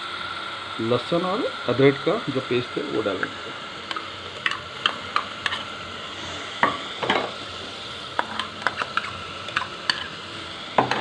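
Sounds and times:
paste sizzling in oil: 0.0 - 11.0
spoon scraping metal bowl: 8.2 - 10.2.

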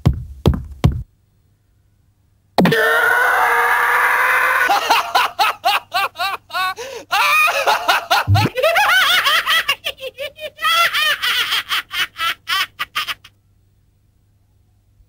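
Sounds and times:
fast cackling laughter: 4.3 - 13.3
low thump: 8.3 - 8.5.

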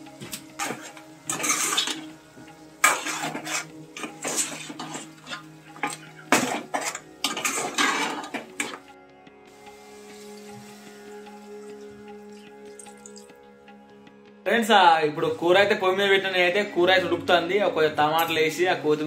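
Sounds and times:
spoon scraping steel pot: 0.6 - 2.2, 2.8 - 8.9.

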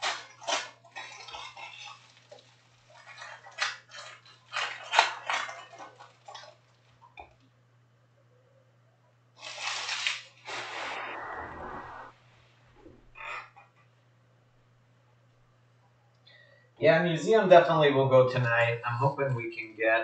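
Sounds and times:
foil wrappers crinkling: 0.0 - 7.2, 9.4 - 10.5.

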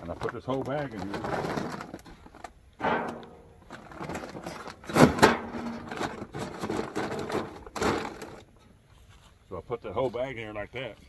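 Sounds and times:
bumps: 2.8 - 6.3
clunk in steel firebox: 2.8 - 8.7.

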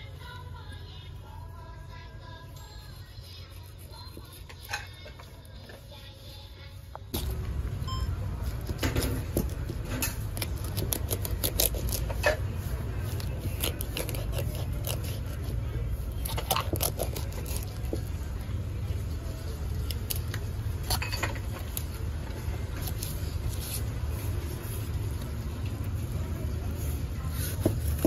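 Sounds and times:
utensils and dishes clinking: 20.8 - 21.8.

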